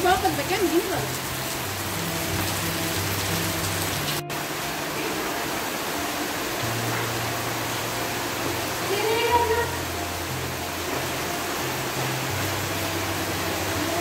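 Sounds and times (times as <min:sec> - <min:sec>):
soft background music: 0:00.0 - 0:14.0.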